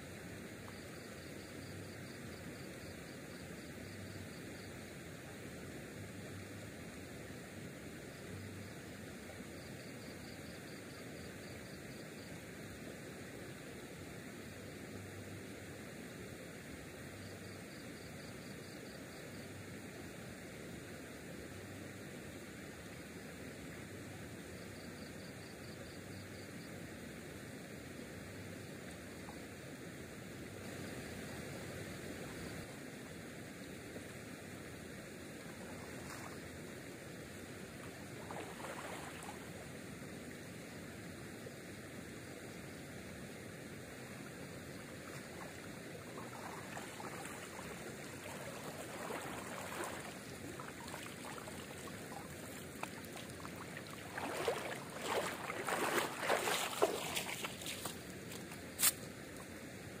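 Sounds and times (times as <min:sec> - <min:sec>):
steady background hiss: 0:00.0 - 1:00.0
water sloshing and trickling: 0:37.8 - 0:39.6, 0:44.7 - 0:58.5
water splashing: 0:37.8 - 0:39.7, 0:44.7 - 0:58.1.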